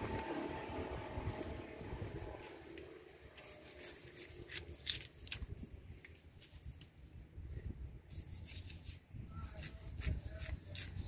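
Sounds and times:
low background rumble: 0.0 - 6.2
blade clicking and scraping: 2.4 - 7.0, 8.1 - 11.0.

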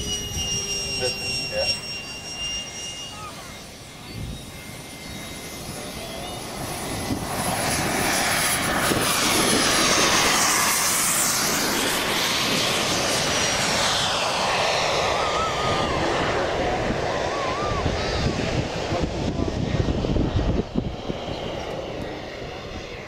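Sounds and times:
thin high whine: 0.0 - 7.1
model jet flying past: 0.0 - 23.0.

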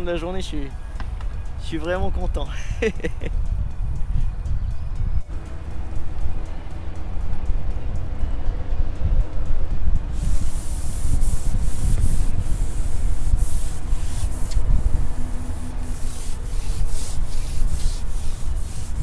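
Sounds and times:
wind buffeting the microphone: 3.3 - 5.4, 7.6 - 19.0.

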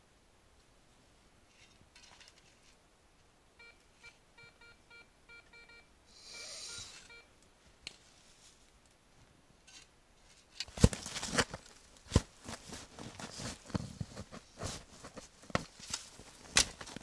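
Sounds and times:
metal detector beeping: 3.6 - 7.3.

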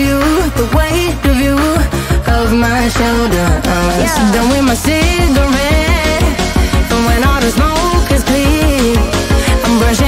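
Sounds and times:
gliding melody over steady beat: 0.0 - 10.0.

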